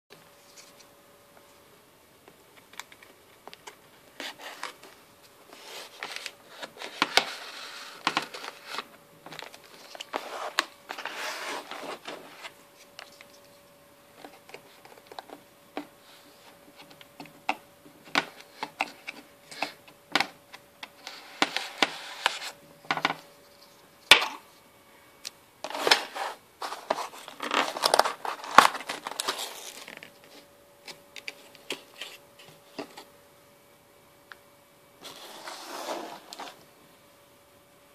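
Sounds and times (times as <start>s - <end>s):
faint steady hum: 0.1s - 37.9s
paper rustling and crinkling: 2.6s - 13.6s, 25.6s - 33.1s.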